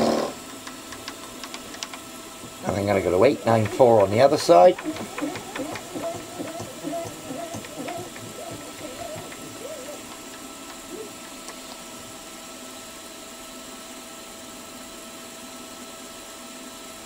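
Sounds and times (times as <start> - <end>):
milling machine spindle whine: 1.0 - 12.3.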